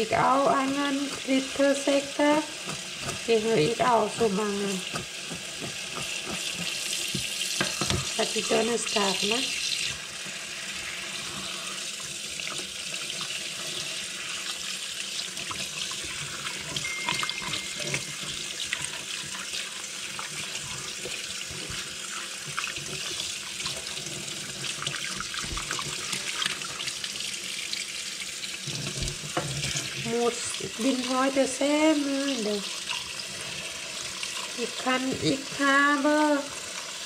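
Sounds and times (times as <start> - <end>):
tap running into steel sink: 4.2 - 8.2.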